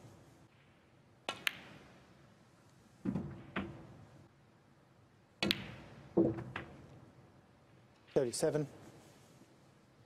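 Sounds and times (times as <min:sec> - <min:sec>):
snooker balls clicking: 0:01.3 - 0:01.8.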